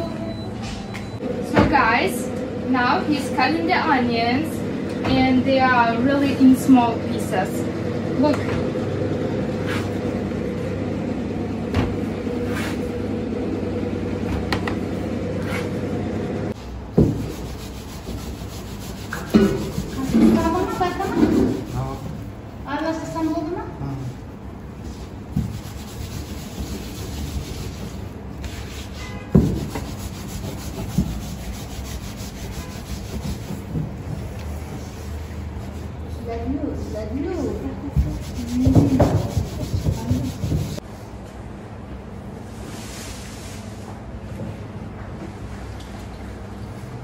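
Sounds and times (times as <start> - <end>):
steady machine hum: 0.0 - 42.7
rolling pin rumbling on board: 37.9 - 40.8.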